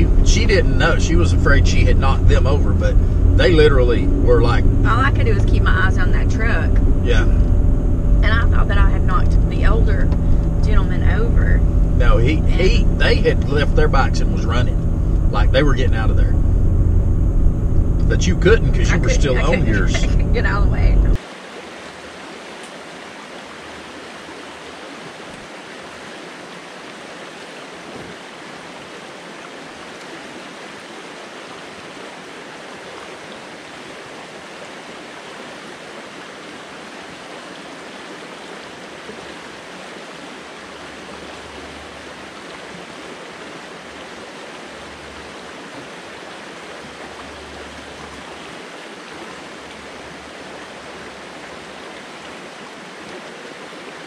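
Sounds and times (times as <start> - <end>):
stream rushing over rocks: 21.2 - 54.0.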